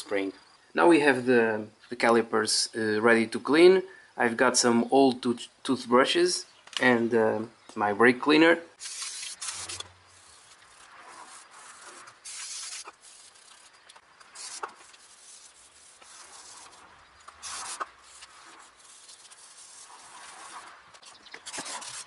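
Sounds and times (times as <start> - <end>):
toothbrush scrubbing metal: 11.2 - 22.0
aerosol spray hissing: 11.3 - 13.7, 14.3 - 20.7.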